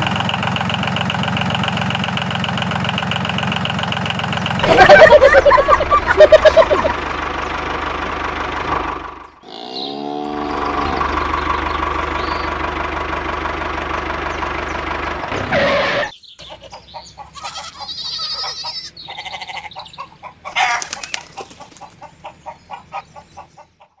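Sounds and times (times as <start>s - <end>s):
small engine humming: 0.0s - 16.1s
farm animal calls: 4.6s - 7.6s, 9.4s - 12.6s, 14.3s - 24.0s.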